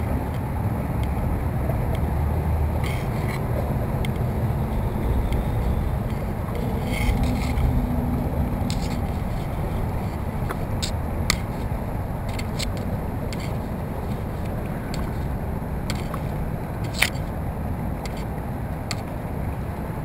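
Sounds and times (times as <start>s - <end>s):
water washing along hull: 0.0s - 20.0s
wind rumble on microphone: 0.0s - 20.0s.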